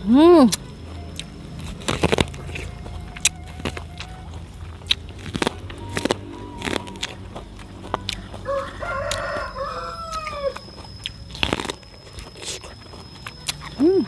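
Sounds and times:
crunching bites and chewing: 0.5s - 14.0s
rooster crowing: 2.4s - 11.3s.

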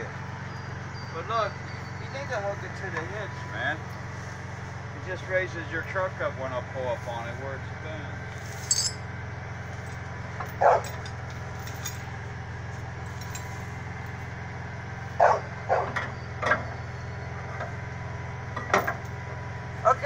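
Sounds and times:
vehicle engine idling: 0.0s - 20.0s
dog barking: 10.6s - 11.0s, 15.2s - 16.0s.

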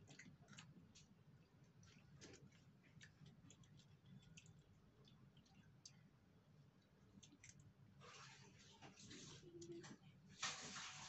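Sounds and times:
faint low hum: 0.0s - 10.9s.

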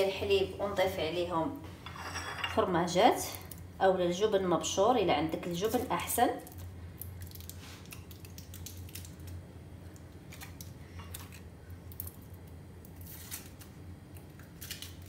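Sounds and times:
steady low hum: 0.0s - 15.0s
foil wrappers crinkling: 6.4s - 9.4s, 10.2s - 15.0s.

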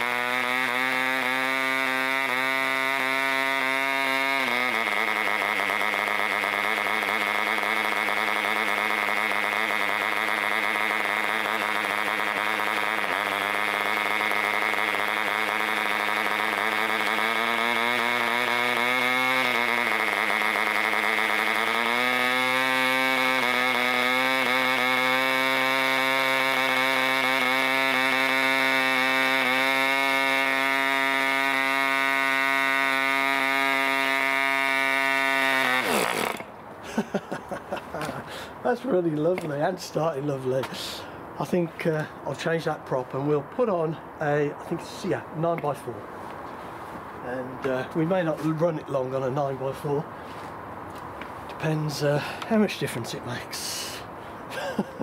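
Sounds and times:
model engine running at high speed: 0.0s - 39.5s.

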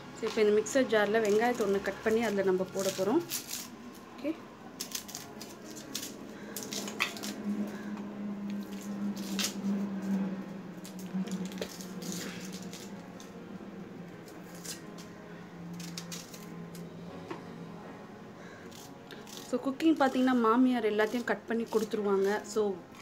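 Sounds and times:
steady low hum: 0.0s - 23.0s
onion skin crackling and tearing: 1.0s - 4.1s, 4.8s - 7.9s, 8.5s - 10.2s, 10.8s - 13.4s, 14.2s - 16.8s, 18.7s - 23.0s.

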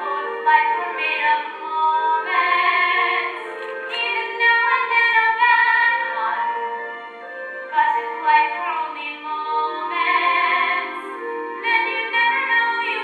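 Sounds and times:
woman singing sustained notes: 0.0s - 6.7s.

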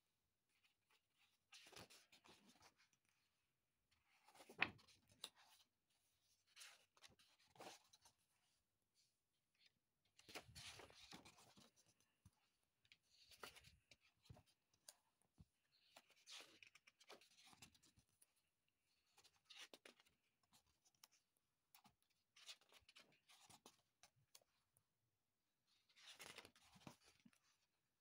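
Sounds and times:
paper pages rustling: 25.9s - 27.4s.

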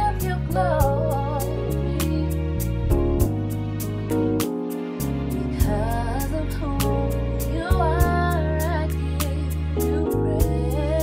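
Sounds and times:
gospel ballad: 0.0s - 11.0s
strings: 0.0s - 11.0s
synth bass: 0.0s - 11.0s
tremolo electric piano: 2.8s - 9.2s, 9.8s - 11.0s.

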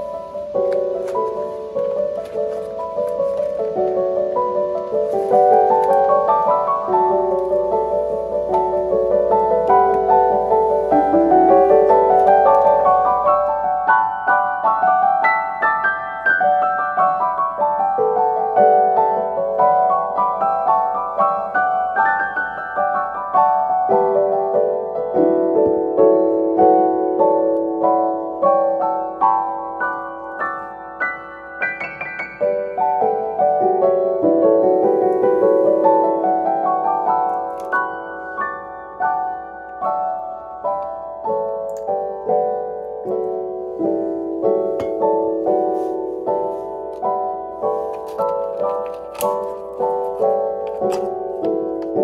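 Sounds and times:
gentle piano melody: 0.0s - 52.0s.

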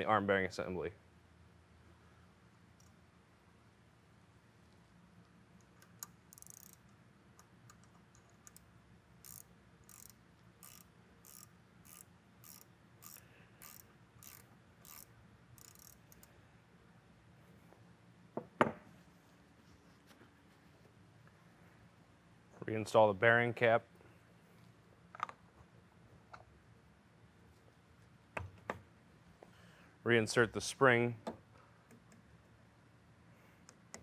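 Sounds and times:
wrench clicking: 5.6s - 16.3s.

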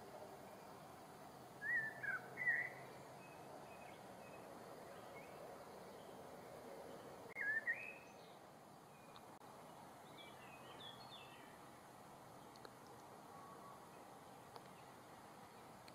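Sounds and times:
steady background hiss: 0.0s - 15.9s
bird calling in sliding phrases: 1.6s - 2.9s.

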